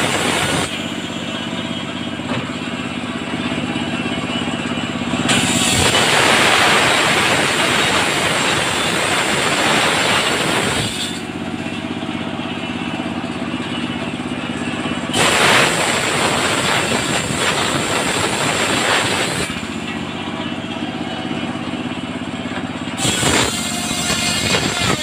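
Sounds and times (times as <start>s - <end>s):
circular saw blade ripping wood: 5.3s - 11.3s, 23.0s - 25.0s.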